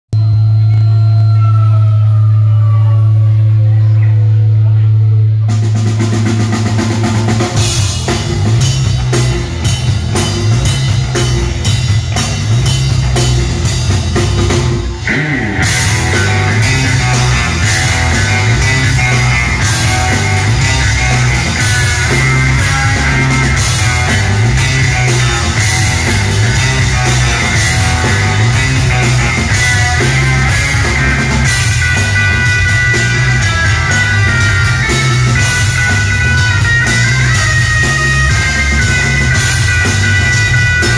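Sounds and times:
live rock band playing: 5.0 - 40.9
lead guitar high notes: 14.7 - 40.9.

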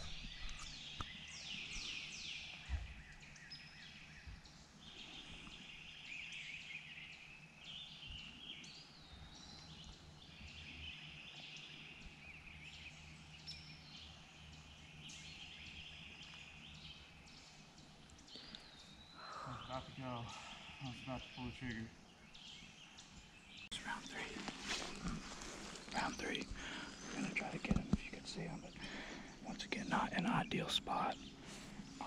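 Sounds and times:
songbirds singing and calling: 0.0 - 32.0
faint river ambience: 10.0 - 32.0.

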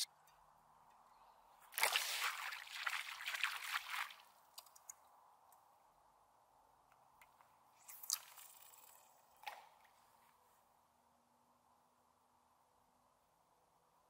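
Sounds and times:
water noise: 1.6 - 4.9
lure splashing into water: 1.7 - 4.8.

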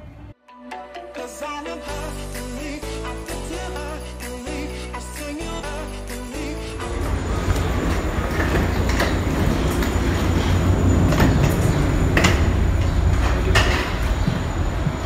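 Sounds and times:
footsteps: 6.8 - 15.0
loud low rumble: 6.8 - 15.0.

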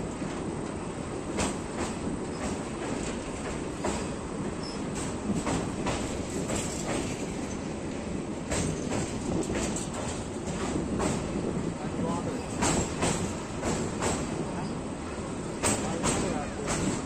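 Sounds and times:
train wheels rumbling on rails: 0.0 - 17.0
sharp clacks: 12.5 - 14.4, 15.6 - 17.0.

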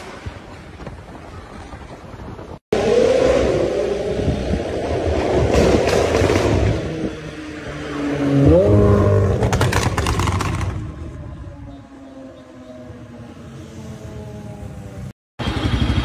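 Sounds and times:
car engine revving: 2.8 - 10.9
exhaust crackles: 8.2 - 11.0.

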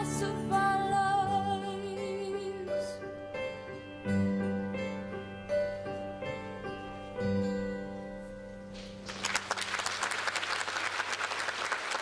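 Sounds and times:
audience applause: 9.0 - 12.0.

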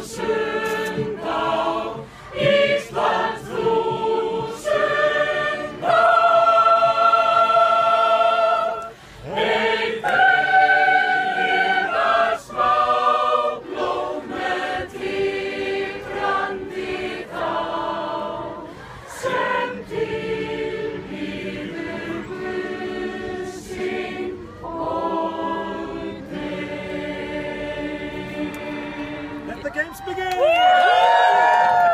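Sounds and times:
group singing in chorus: 0.0 - 29.5.

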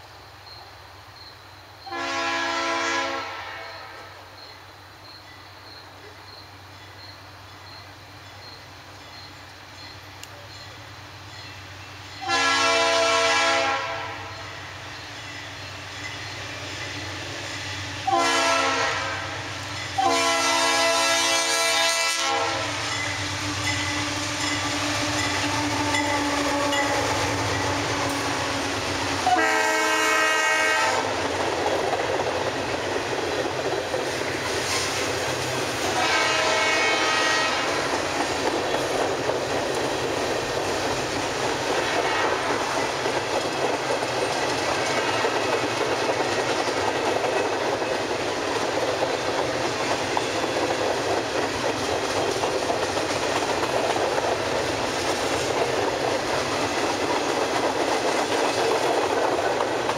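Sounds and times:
train rumbling: 0.0 - 59.9
locomotive air horn blasts: 1.9 - 4.1, 12.2 - 14.4, 18.0 - 19.4, 20.0 - 28.4, 29.2 - 31.2, 35.9 - 37.8.

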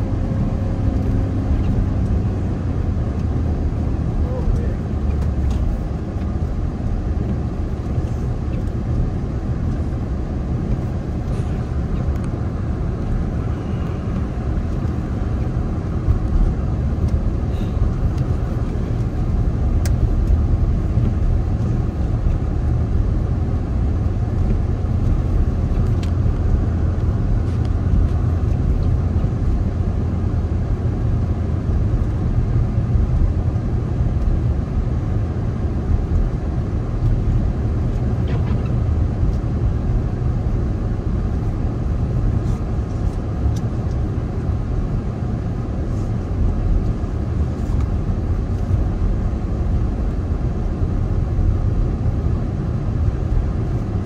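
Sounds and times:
car driving rumble: 0.0 - 54.0
road and tyre noise: 0.0 - 54.0.

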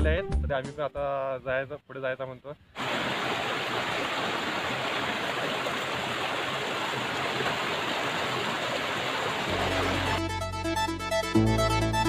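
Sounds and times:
stream rushing over stones: 2.8 - 10.2.

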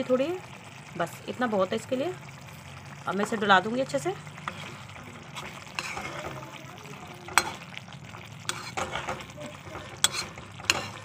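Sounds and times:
food sizzling softly: 0.0 - 11.0
metal spoon stirring curry: 2.2 - 11.0.

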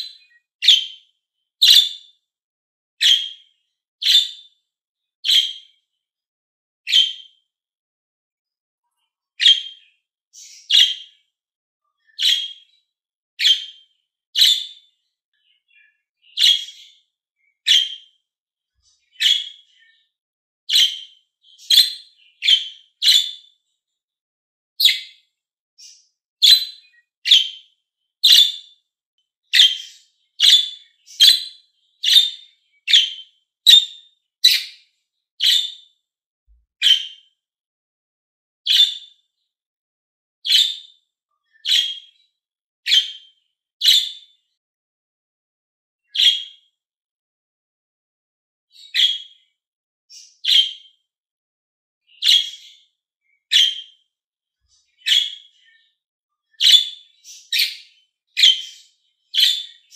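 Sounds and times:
budgerigar chirping: 0.0 - 1.0, 1.6 - 2.0, 3.0 - 3.4, 4.0 - 4.4, 5.2 - 5.6, 6.9 - 7.2, 9.4 - 9.8, 10.4 - 11.1, 12.2 - 12.7, 13.4 - 13.8, 14.4 - 14.8, 16.3 - 17.0, 17.7 - 18.1, 19.1 - 19.7, 20.7 - 23.4, 24.8 - 25.2, 25.8 - 27.6, 28.2 - 28.7, 29.5 - 34.8, 35.4 - 35.8, 36.8 - 37.2, 38.7 - 39.1, 40.5 - 40.8, 41.6 - 42.1, 42.9 - 43.2, 43.8 - 44.2, 46.2 - 46.4, 48.8 - 49.3, 50.1 - 50.8, 52.2 - 52.8, 53.5 - 53.9, 55.0 - 55.5, 56.6 - 59.9.

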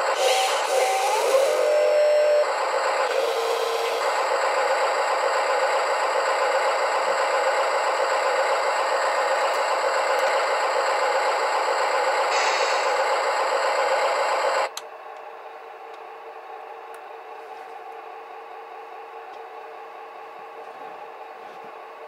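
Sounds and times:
electronic engine sound: 0.0 - 14.7.

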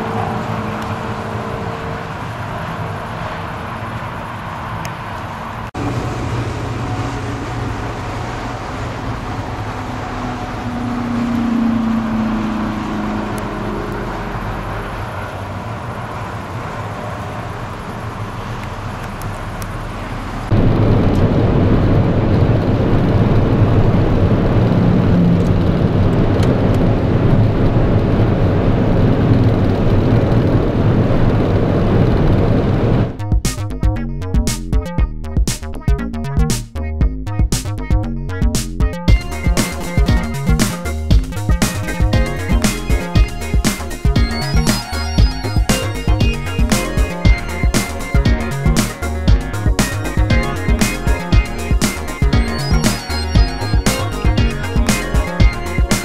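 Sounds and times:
cars passing on a motorway: 0.0 - 33.2
road and wind noise inside car: 0.0 - 33.2.

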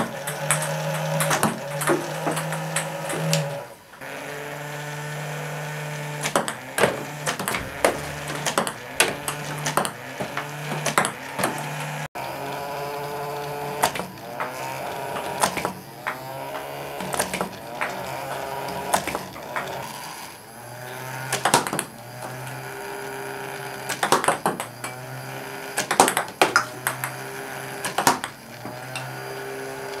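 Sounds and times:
ball clicks and taps: 0.0 - 3.6, 6.2 - 12.0, 13.3 - 19.9, 23.9 - 25.1, 25.8 - 27.2
small motor humming: 0.0 - 30.0.

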